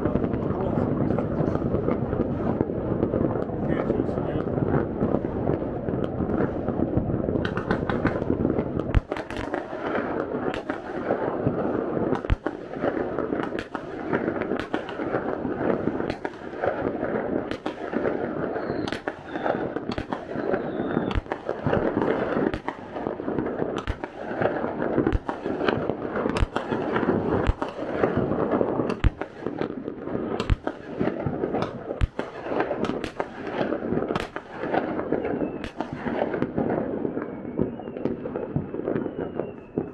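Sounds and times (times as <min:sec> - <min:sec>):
distant fireworks crackling: 0:00.0 - 0:39.9
fireworks bangs: 0:00.0 - 0:39.9.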